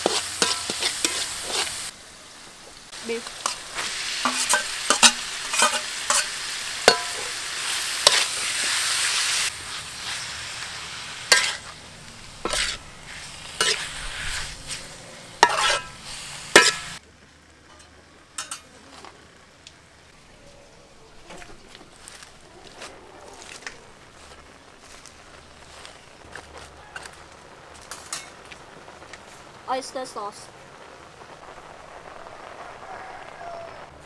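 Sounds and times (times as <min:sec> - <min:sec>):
meat sizzling in a wok: 0:00.0 - 0:20.0, 0:21.1 - 0:34.0
spatula clacking against wok: 0:04.2 - 0:07.3.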